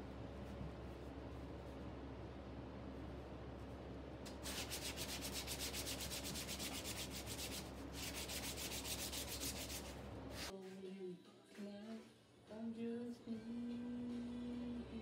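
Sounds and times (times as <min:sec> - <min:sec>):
hand sanding wood: 0:04.3 - 0:10.5.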